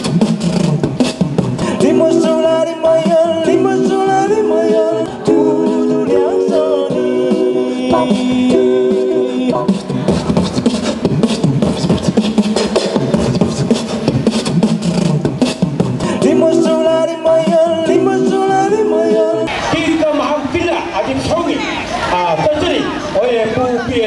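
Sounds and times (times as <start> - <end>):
music with quick steady beat: 0.0 - 19.5
held sung notes: 1.0 - 19.7.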